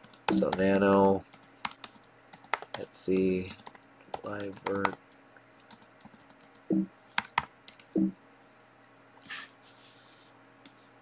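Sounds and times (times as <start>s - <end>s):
keyboard keys clicking: 0.0s - 5.0s, 5.6s - 8.1s.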